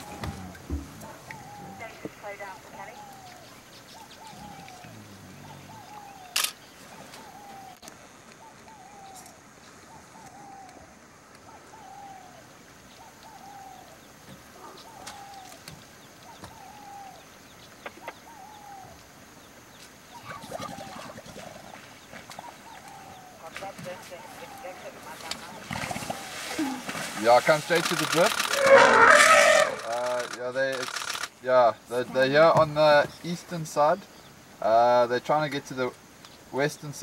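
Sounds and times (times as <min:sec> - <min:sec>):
bird calling falling note: 0:28.4 - 0:30.4.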